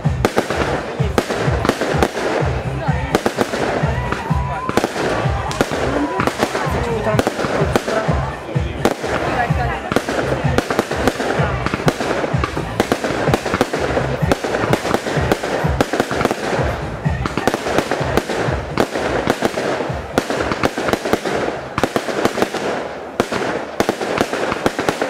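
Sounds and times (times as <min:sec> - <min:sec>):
fireworks bangs and crackles: 0:00.0 - 0:25.0.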